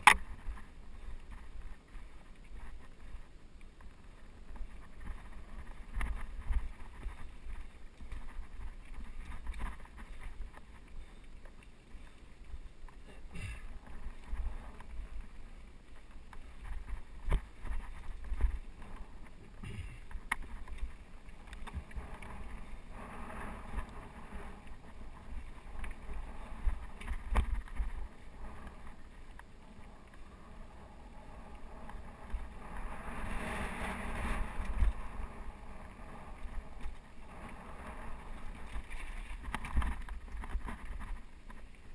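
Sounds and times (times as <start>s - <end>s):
bike knocking and rattling on rocks: 0.0s - 12.1s, 12.8s - 29.5s, 36.4s - 41.9s
bike tyres rumbling on dirt: 0.0s - 41.9s
wind on microphone: 13.3s - 41.9s.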